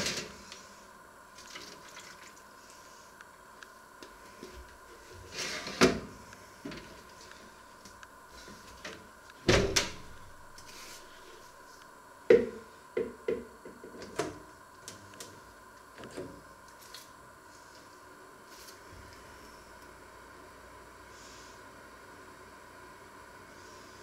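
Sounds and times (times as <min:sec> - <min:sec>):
oven door thunking shut: 0:09.5 - 0:10.1.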